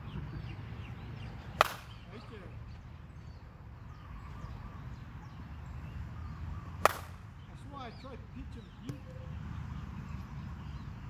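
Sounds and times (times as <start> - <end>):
baseball bat hitting ball: 1.6 - 1.9, 6.8 - 7.2.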